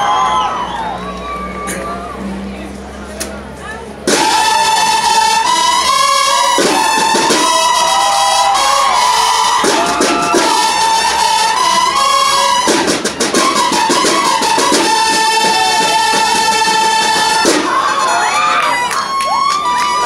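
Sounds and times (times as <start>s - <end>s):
snare drum beats and rolls: 4.1s - 17.9s
brass horns playing fanfare: 4.1s - 20.0s.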